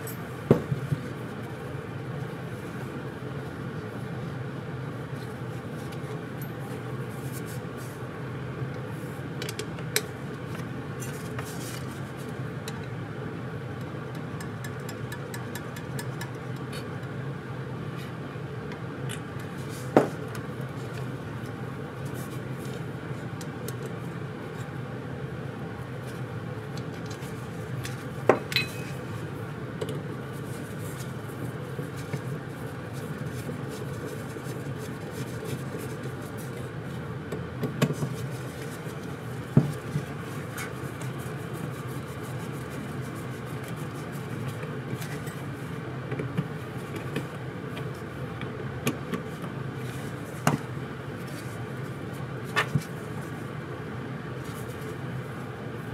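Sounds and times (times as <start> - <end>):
steady low hum: 0.0 - 55.9.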